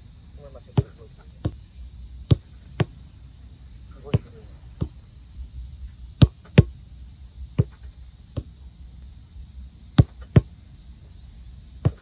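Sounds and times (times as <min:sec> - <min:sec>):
foot kicking football thuds: 0:00.6 - 0:03.1, 0:03.7 - 0:08.7, 0:09.9 - 0:10.6, 0:11.8 - 0:12.0.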